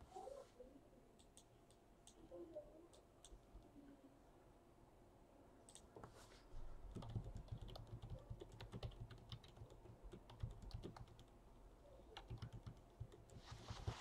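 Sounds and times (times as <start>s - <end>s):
computer keyboard typing: 6.9s - 11.4s, 12.1s - 13.9s.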